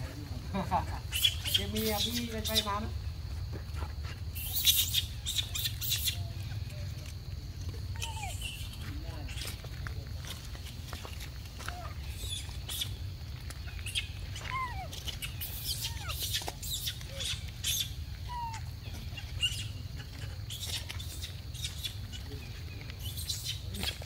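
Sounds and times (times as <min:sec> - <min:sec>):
squeaky chirps: 0:01.1 - 0:02.8, 0:04.3 - 0:07.1, 0:07.9 - 0:09.6, 0:11.7 - 0:13.0, 0:13.6 - 0:19.9, 0:20.5 - 0:24.0
footsteps on dry leaves: 0:03.1 - 0:24.0.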